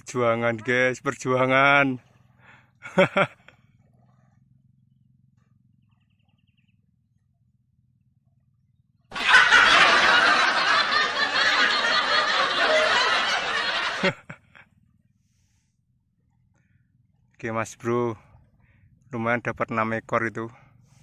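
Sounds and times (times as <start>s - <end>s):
laughter sound effect: 9.1s - 14.6s.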